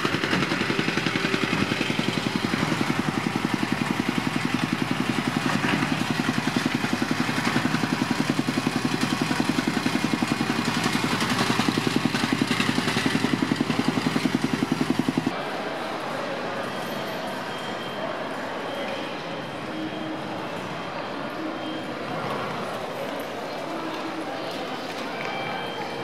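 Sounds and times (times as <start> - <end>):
machinery engine chugging: 0.0 - 15.5.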